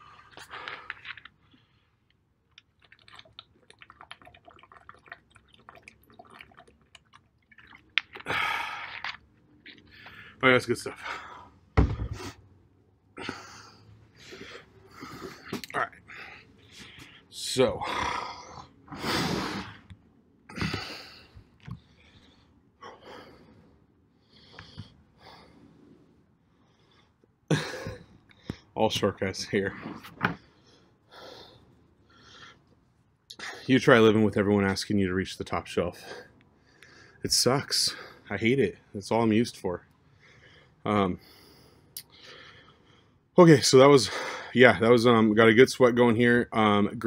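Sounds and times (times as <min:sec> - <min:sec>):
person gulping water: 0:02.5 - 0:09.8.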